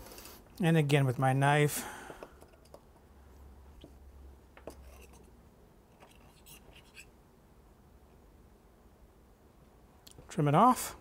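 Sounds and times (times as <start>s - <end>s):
knife scraping dough on ramekin: 4.7s - 5.3s, 6.0s - 7.1s.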